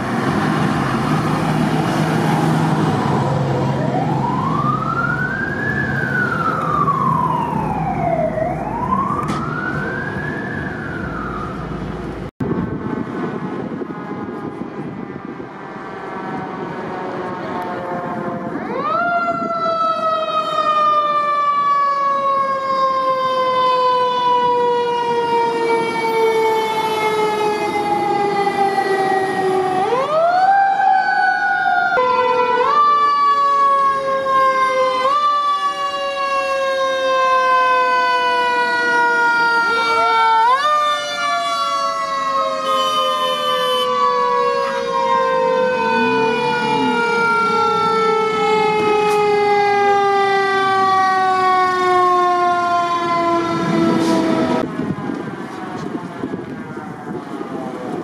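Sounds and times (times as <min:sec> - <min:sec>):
fire truck mechanical siren: 0:00.0 - 0:15.5, 0:16.1 - 0:58.0.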